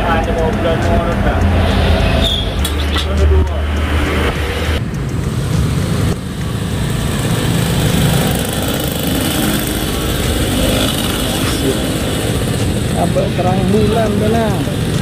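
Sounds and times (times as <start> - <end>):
small engine running: 3.7 - 15.0.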